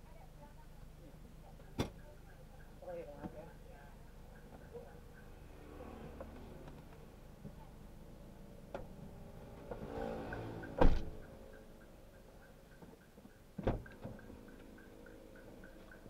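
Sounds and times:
car doors shutting: 10.6s - 11.2s, 13.6s - 14.2s.

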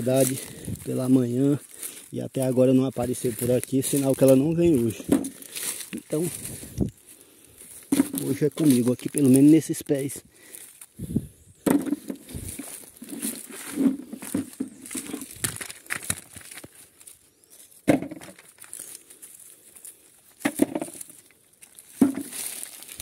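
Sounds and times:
rustling of dry leaves: 0.0s - 23.0s
palm fruits thudding together: 3.3s - 6.2s, 7.8s - 9.5s, 11.6s - 16.8s, 17.8s - 18.8s, 20.4s - 23.0s.

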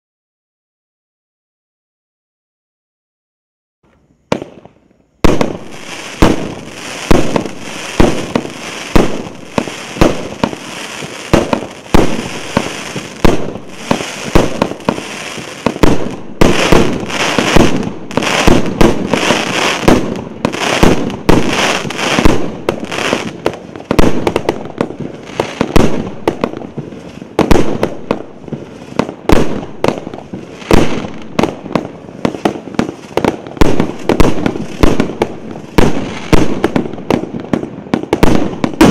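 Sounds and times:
crackling hiss of fireworks: 3.9s - 38.9s
fireworks reports: 4.3s - 38.9s.

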